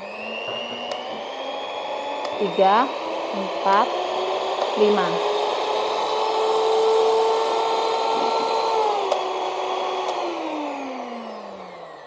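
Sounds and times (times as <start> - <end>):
hand mixer motor whine: 0.0 - 12.0
mixer switch click: 9.0 - 9.3, 10.0 - 10.3.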